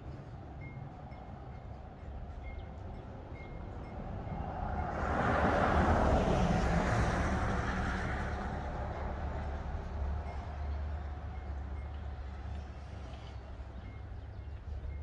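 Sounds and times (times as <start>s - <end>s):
vehicle passing on highway: 4.0s - 10.2s.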